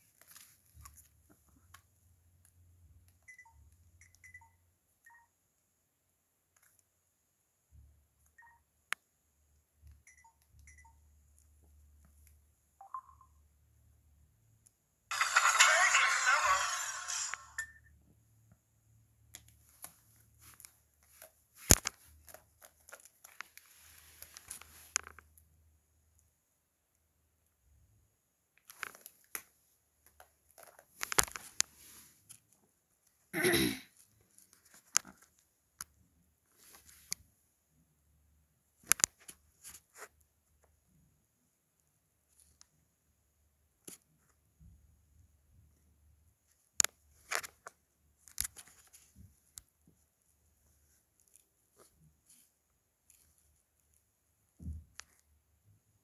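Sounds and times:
mobile phone key beeps: 3.3 - 5.3, 10.0 - 11.0, 12.8 - 13.4
rustling of handling: 19.6 - 25.2.

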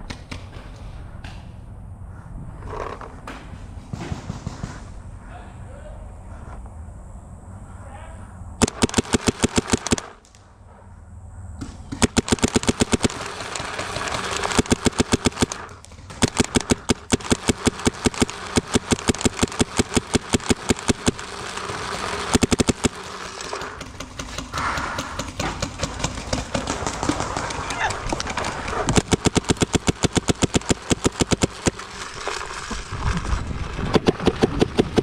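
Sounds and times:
paintball marker firing rapidly: 8.6 - 10.2, 11.6 - 32.4, 33.9 - 35.0.

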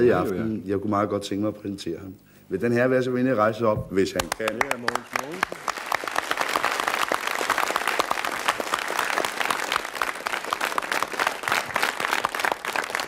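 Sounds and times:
crowd applauding: 4.2 - 13.0.

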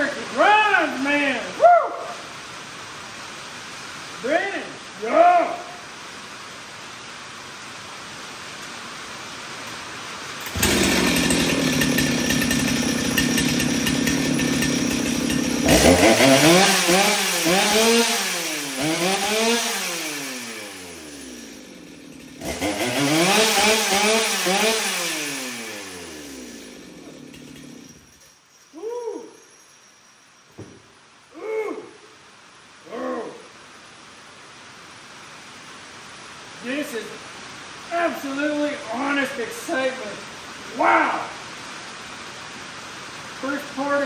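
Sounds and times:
chainsaw revving: 10.4 - 28.2.

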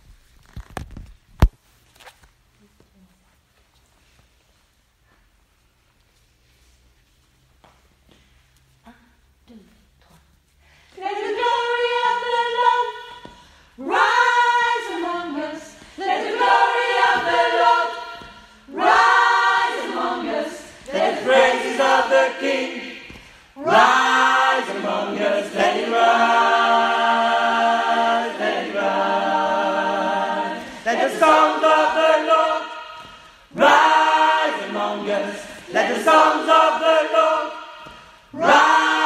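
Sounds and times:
men's choir singing a cappella: 13.8 - 39.0.

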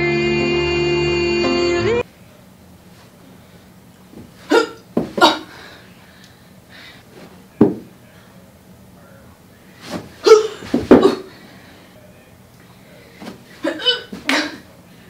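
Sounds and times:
body thumping on carpeted floor: 5.0 - 5.4, 9.9 - 11.2.

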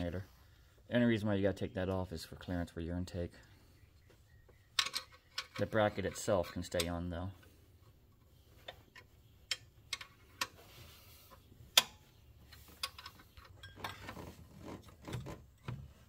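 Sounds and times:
metal tools clicking and clinking: 12.8 - 14.2.

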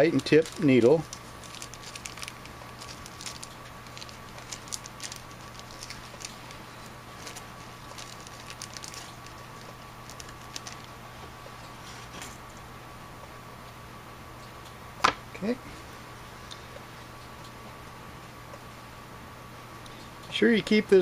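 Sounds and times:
faint electrical hum: 0.0 - 21.0.

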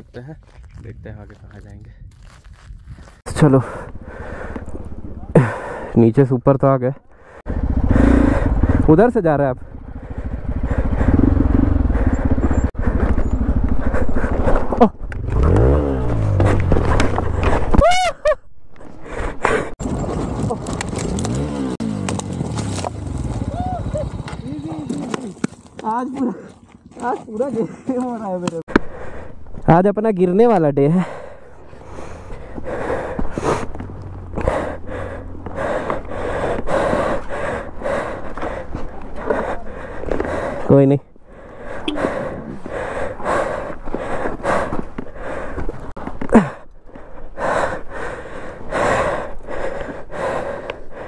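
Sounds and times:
person breathing hard: 3.6 - 4.8, 5.4 - 6.0, 7.1 - 8.8, 9.9 - 14.8, 18.9 - 19.8, 28.7 - 29.5, 31.0 - 33.8, 34.4 - 51.0
motorcycle engine idling: 7.4 - 14.5.

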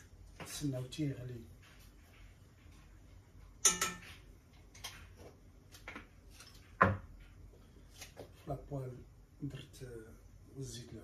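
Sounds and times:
metal pots and pans clinking: 3.6 - 4.2.

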